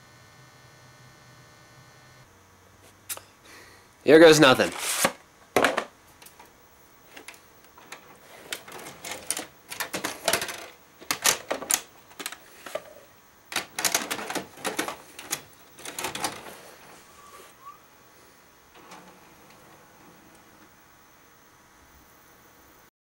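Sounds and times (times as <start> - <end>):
plastic cassette clicks and rattles: 7.1 - 12.9, 13.5 - 16.5.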